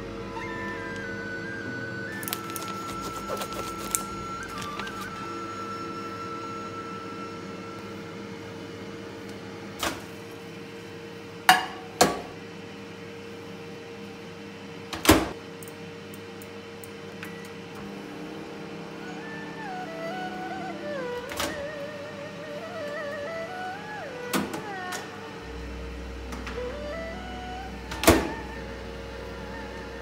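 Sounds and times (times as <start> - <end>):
knocks and clunks of microwave: 11.5 - 12.4, 14.9 - 15.4
microwave door shutting: 14.9 - 15.4, 20.9 - 21.9, 27.8 - 28.6
steady low hum: 15.4 - 30.0.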